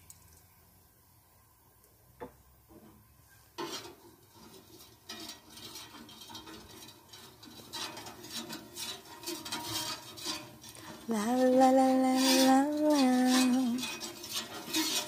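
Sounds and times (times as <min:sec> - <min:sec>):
metal spatula scraping griddle: 0:03.6 - 0:15.0.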